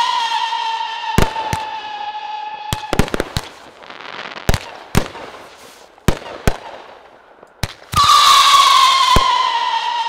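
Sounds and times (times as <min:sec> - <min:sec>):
firework whistle: 0:00.0 - 0:04.8, 0:07.9 - 0:10.0
fireworks bursting bangs: 0:00.0 - 0:10.0
fireworks crackling: 0:00.0 - 0:10.0.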